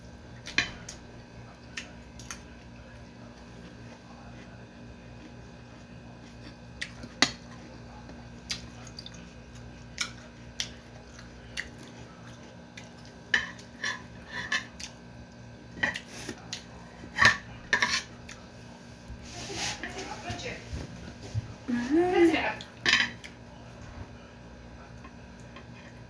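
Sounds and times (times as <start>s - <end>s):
spoon scraping a plate: 13.4s - 14.7s, 17.1s - 18.1s, 19.2s - 20.4s.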